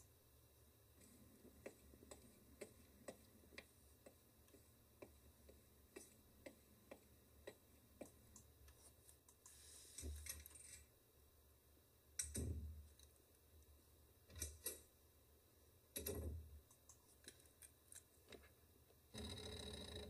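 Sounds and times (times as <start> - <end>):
faint clicks and knocks: 0.9 - 10.9.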